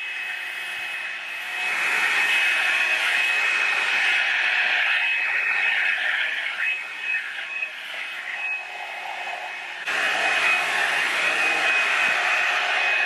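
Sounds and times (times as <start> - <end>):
hot-air brush dryer whine: 0.0 - 13.0.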